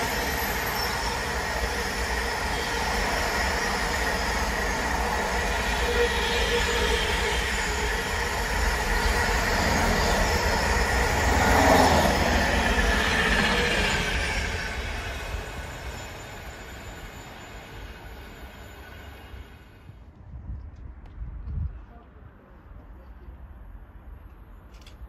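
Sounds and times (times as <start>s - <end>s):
ringing from train wheels: 0.0s - 19.8s.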